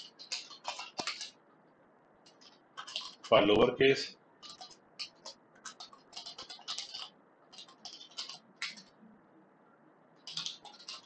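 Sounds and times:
typing on keyboard: 0.0 - 1.4, 2.2 - 3.3, 4.4 - 9.0, 10.2 - 11.0.

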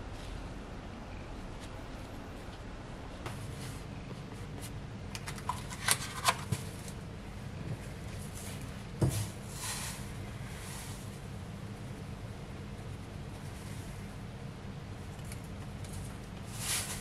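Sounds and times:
rustle: 15.9 - 17.0.

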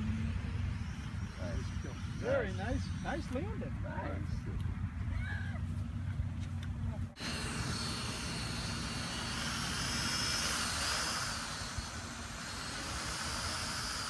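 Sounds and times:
toy drone motors whining: 0.0 - 4.4, 7.2 - 14.0.

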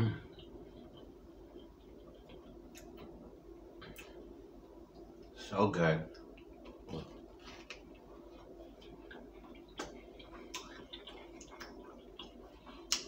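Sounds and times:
chewing and mouth sounds: 0.3 - 3.2, 6.1 - 13.0.

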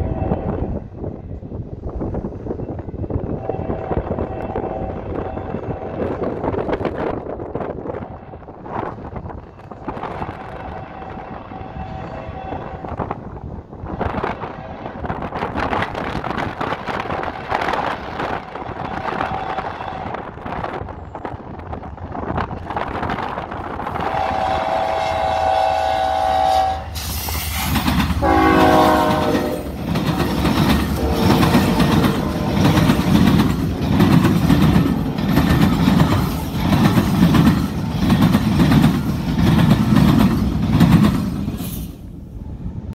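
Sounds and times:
locomotive air horn: 0.0 - 0.8, 3.3 - 6.2, 10.5 - 13.0, 18.8 - 20.3, 24.0 - 27.6, 28.2 - 29.8, 31.0 - 33.0.

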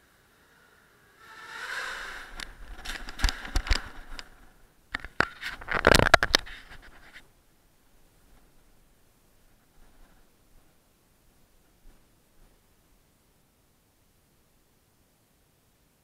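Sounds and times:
drone motors whining: 0.0 - 3.8.

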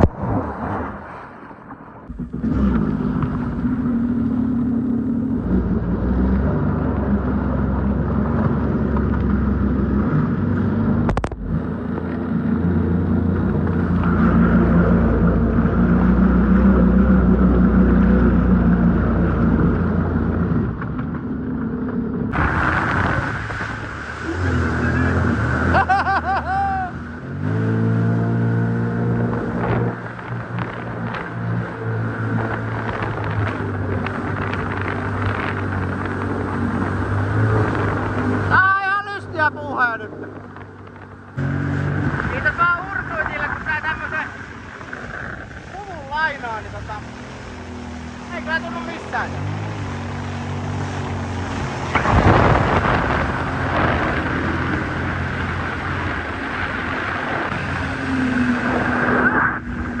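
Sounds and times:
watercraft engine drone: 0.0 - 60.0
hull scraping across ice: 41.5 - 60.0.

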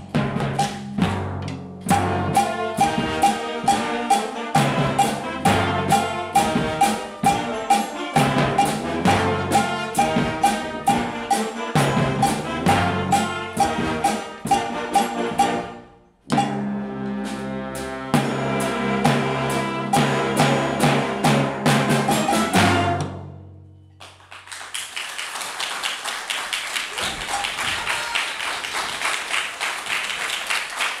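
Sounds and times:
timpani drum strokes: 0.0 - 23.5
wind orchestra playing: 1.9 - 23.3
audience applause: 24.0 - 31.0.

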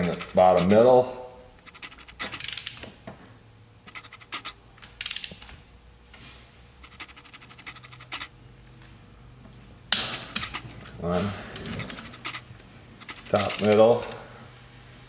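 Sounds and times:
ratchet wrench clicking: 1.6 - 2.9, 3.9 - 5.5, 6.8 - 8.3, 11.8 - 13.9.

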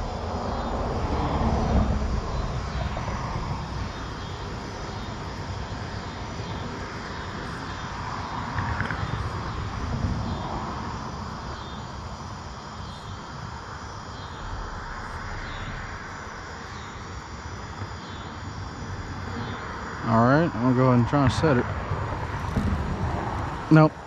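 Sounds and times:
constant low rumble: 0.0 - 24.0.

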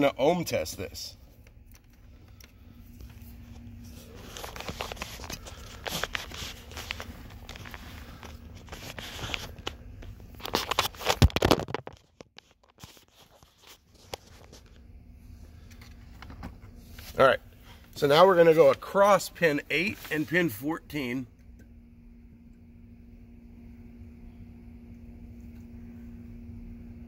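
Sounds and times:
multimeter and leads scraping on carpet: 3.0 - 11.0.

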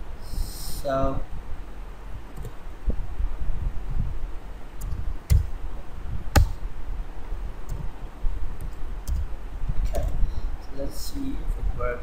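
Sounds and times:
low background rumble: 0.0 - 12.0
keyboard and mouse clicks: 4.8 - 5.5, 8.6 - 9.3.

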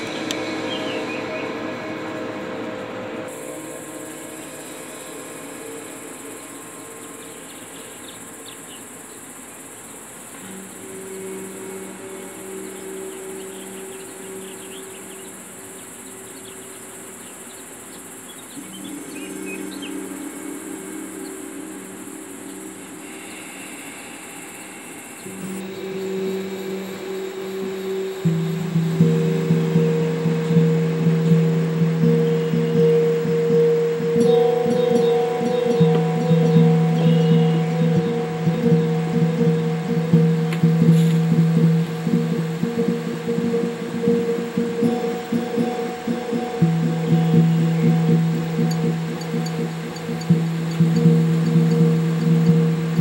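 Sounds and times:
low held musical notes: 0.0 - 17.5, 18.1 - 53.0
insects buzzing: 0.0 - 53.0
low steady hum: 0.0 - 53.0
plucked guitar-like music: 25.4 - 53.0.

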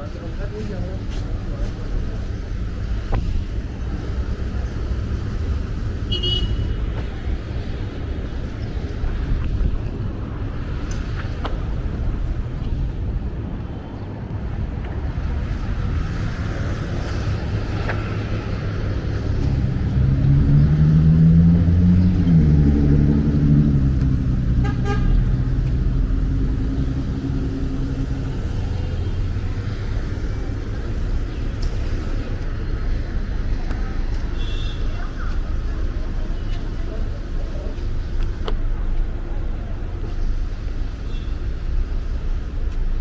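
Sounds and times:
car horn toot: 6.1 - 6.8
vehicle engine passing: 15.7 - 31.1.

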